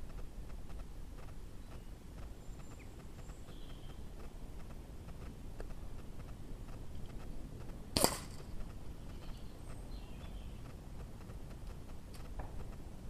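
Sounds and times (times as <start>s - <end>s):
air rifle shot: 8.0s - 8.4s.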